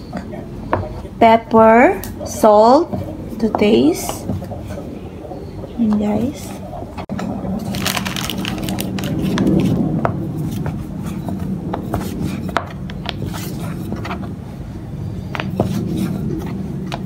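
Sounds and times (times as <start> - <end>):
rolling pin rolling dough: 9.1 - 14.4, 15.2 - 17.0.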